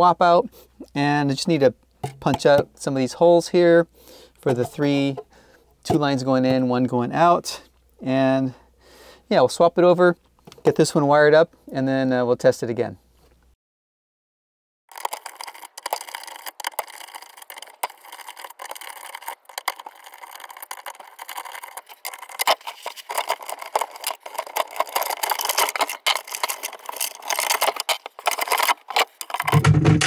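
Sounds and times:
rattling and clicking of wires: 4.4s - 6.9s, 14.9s - 30.0s.

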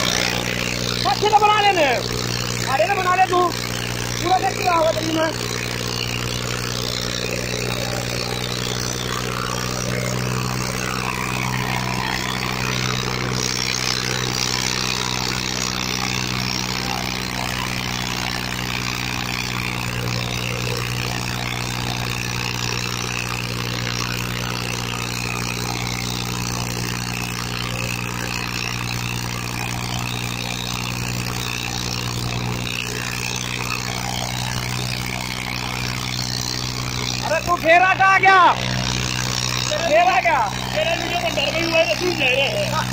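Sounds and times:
tractor diesel engine under load: 0.0s - 42.9s.

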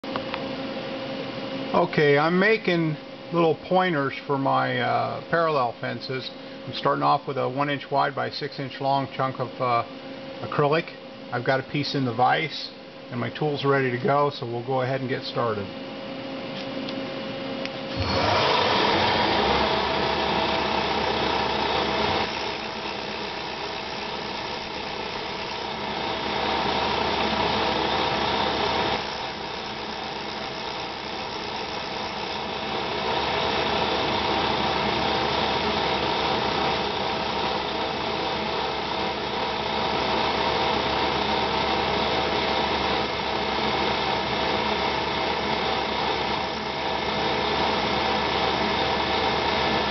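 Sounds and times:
milling machine cutting plastic: 17.9s - 49.9s.

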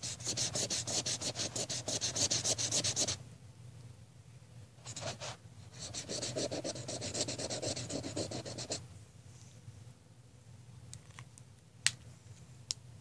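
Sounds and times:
pen scribbling on paper: 0.0s - 3.2s, 4.9s - 8.8s.

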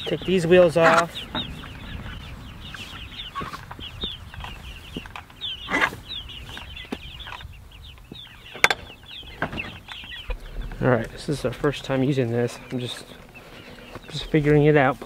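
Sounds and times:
chickens chirping: 0.0s - 15.0s
sharp knocks: 8.6s - 9.8s.

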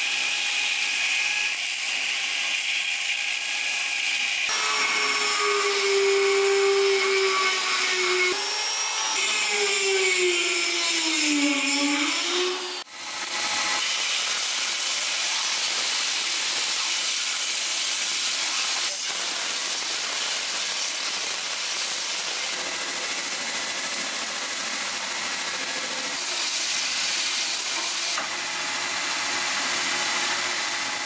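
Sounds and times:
whining grinder motor: 3.6s - 13.8s.

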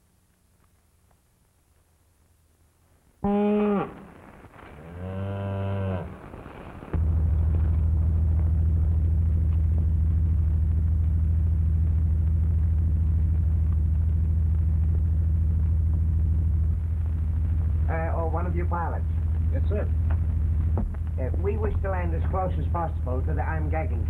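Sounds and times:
cow mooing: 3.2s - 4.0s, 4.8s - 6.2s
propeller airplane engine drone: 7.0s - 24.0s.

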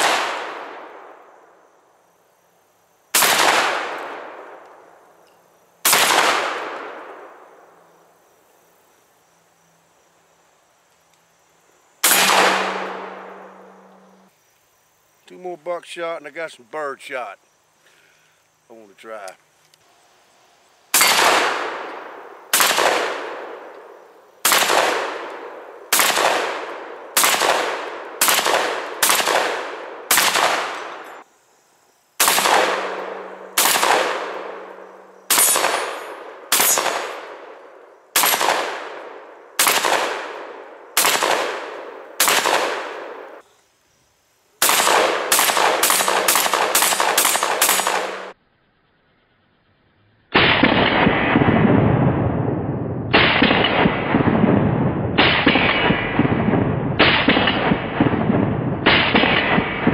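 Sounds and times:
shotgun shots echoing: 0.0s - 1.2s, 3.2s - 4.6s, 5.8s - 7.4s, 12.0s - 14.3s, 21.0s - 23.7s, 24.4s - 31.1s, 32.2s - 37.6s, 38.2s - 43.4s, 44.6s - 48.3s, 50.4s - 52.2s, 53.1s - 59.9s.

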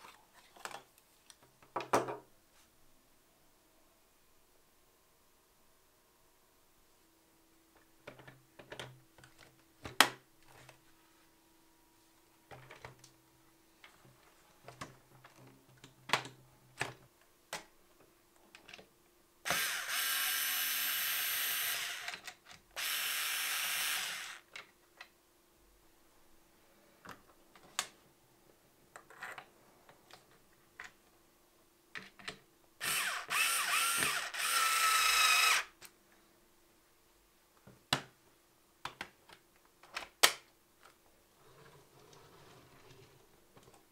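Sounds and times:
electric screwdriver whirring: 19.5s - 22.2s, 22.8s - 24.4s, 32.8s - 35.7s.

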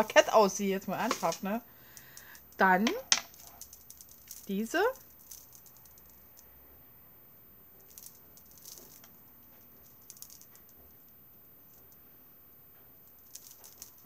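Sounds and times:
beads and chains clicking and jingling: 0.8s - 6.6s, 7.8s - 10.9s, 13.0s - 14.0s.

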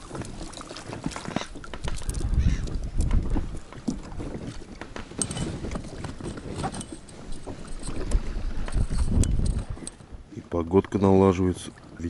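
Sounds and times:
wind buffeting microphone: 1.4s - 10.4s.

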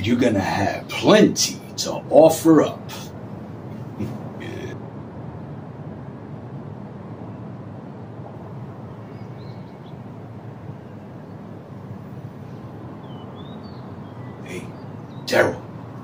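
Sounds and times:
low outdoor rumble: 0.0s - 16.0s
faint bird chirps: 8.8s - 16.0s.

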